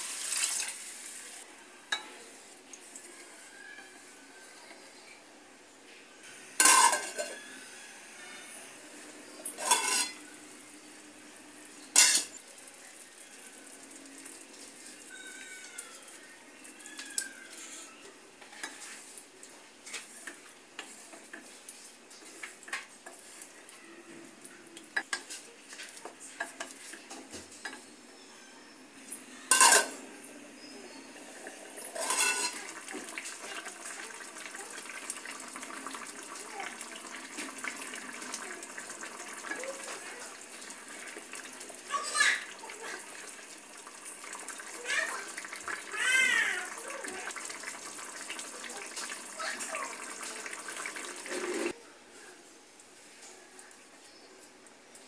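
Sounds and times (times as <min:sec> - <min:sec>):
metal pot clanking: 0:06.6 - 0:07.4, 0:09.4 - 0:10.2, 0:11.9 - 0:12.4, 0:29.5 - 0:30.1, 0:31.5 - 0:33.1
wooden spatula scraping pot: 0:31.8 - 0:33.5.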